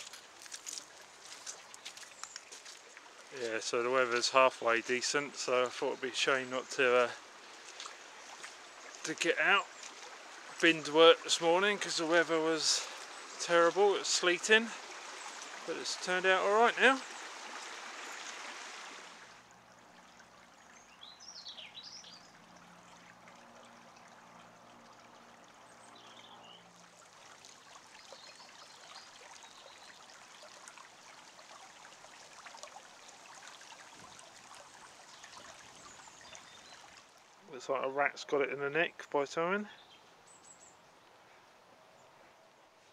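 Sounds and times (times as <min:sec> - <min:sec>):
bird chirps: 0:20.8 - 0:22.3.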